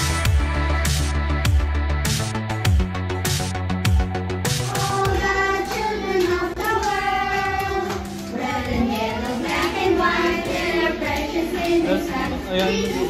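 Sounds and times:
children singing: 4.6 - 13.0.

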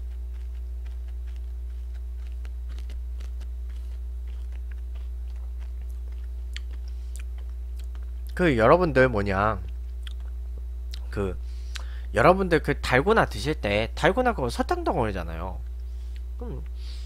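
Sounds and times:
chewing crunches: 0.0 - 8.4, 9.6 - 11.1
steady low hum: 0.0 - 17.0.

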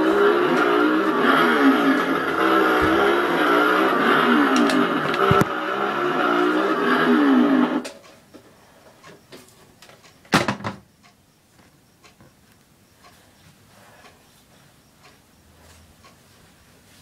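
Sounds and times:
chainsaw revving: 0.0 - 7.8.

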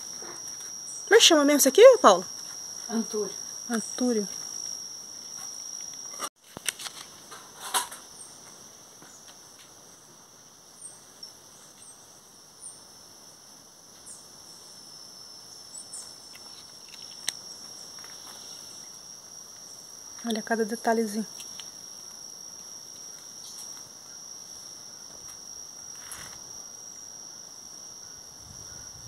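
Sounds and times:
cricket trilling: 0.0 - 29.0.

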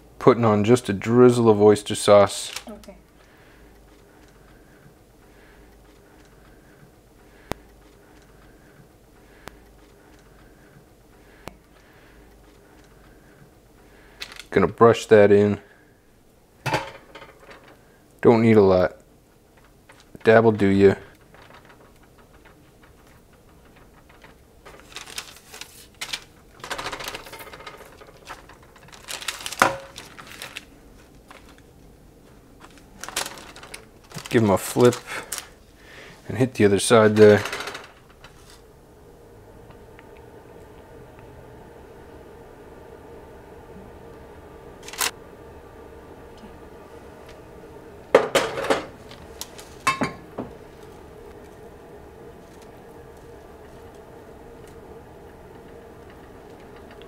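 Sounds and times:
kitchenware clinking and clattering: 16.7 - 17.8, 49.8 - 50.2
paper crinkling: 19.5 - 35.8, 37.0 - 38.7.

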